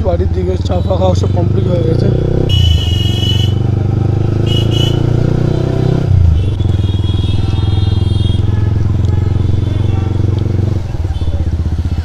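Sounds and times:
motorcycle engine running: 0:00.0 - 0:12.0
vehicle horn beeping: 0:02.5 - 0:03.6, 0:04.4 - 0:10.2.

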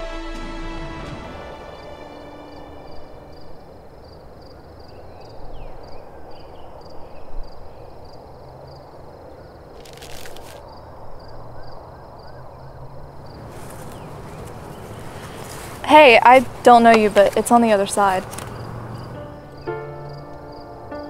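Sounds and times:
high insect chirp: 0:01.4 - 0:21.0
rustling: 0:09.7 - 0:10.7, 0:13.4 - 0:19.2
background hiss: 0:13.2 - 0:21.0.

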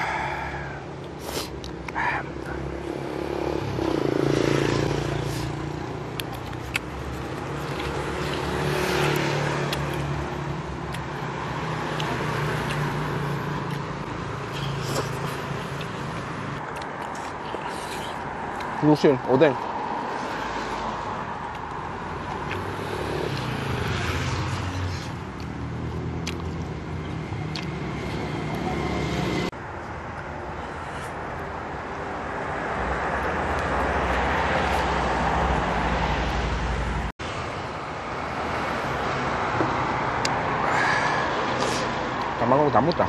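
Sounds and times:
car engines and tyre noise: 0:00.0 - 0:43.0
vehicle passing: 0:02.1 - 0:29.6.

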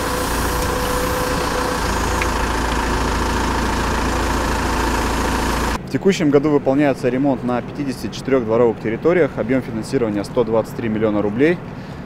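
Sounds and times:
diesel engine running: 0:00.0 - 0:05.8.

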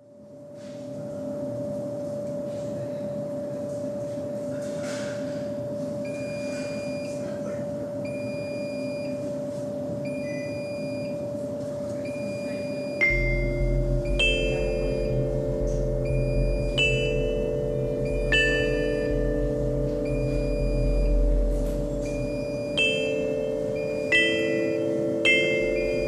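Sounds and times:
electrical hum: 0:00.0 - 0:26.0
high electronic beeps: 0:08.0 - 0:09.3, 0:10.0 - 0:11.3, 0:12.0 - 0:26.0.

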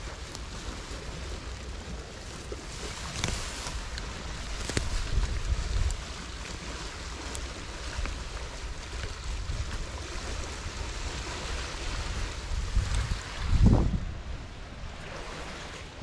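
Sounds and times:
wind on microphone: 0:00.0 - 0:16.0
dry grass rustling: 0:02.8 - 0:06.6.

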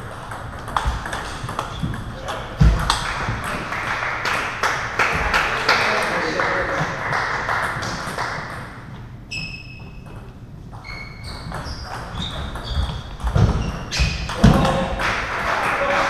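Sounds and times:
table tennis ball hits: 0:00.1 - 0:05.4, 0:11.4 - 0:15.4.

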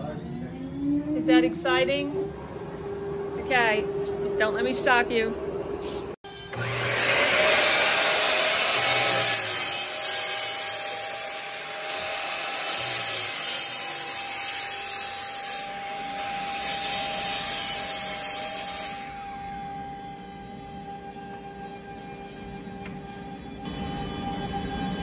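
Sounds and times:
miter saw cutting wood: 0:06.3 - 0:19.7.

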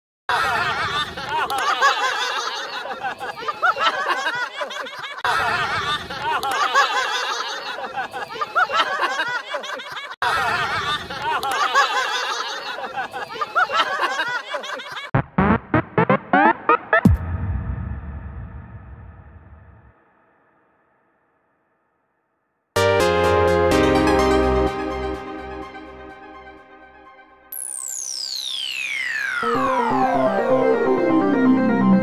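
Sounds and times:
crowd cheering and laughing: 0:00.3 - 0:15.2.

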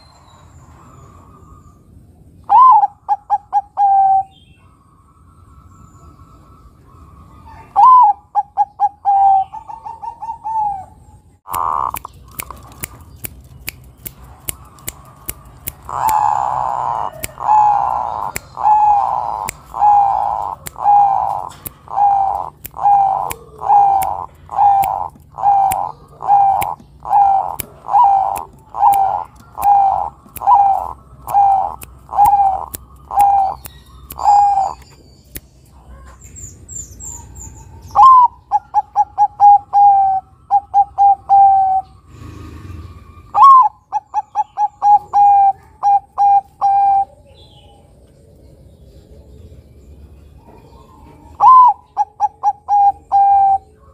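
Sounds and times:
dove cooing: 0:02.5 - 0:04.3, 0:06.8 - 0:12.8, 0:14.4 - 0:34.8, 0:37.3 - 0:47.9, 0:50.4 - 0:53.9.

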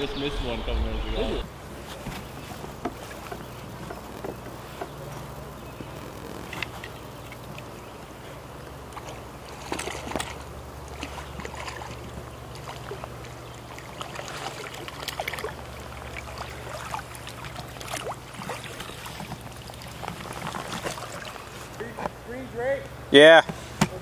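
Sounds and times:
creek water lapping and trickling: 0:00.0 - 0:23.8
steady low hum: 0:00.0 - 0:24.0
fish splashing at surface: 0:09.0 - 0:21.7.

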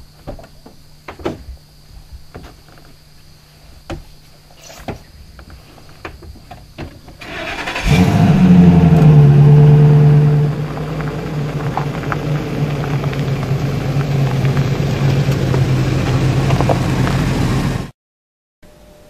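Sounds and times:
truck engine starting and running: 0:07.0 - 0:17.9.

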